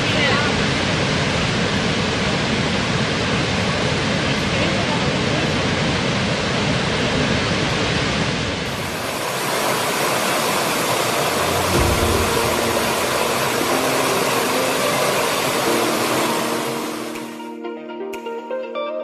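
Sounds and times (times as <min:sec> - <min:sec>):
large waterfall rushing: 0:00.0 - 0:17.5
stream splashing over stones: 0:08.7 - 0:17.4.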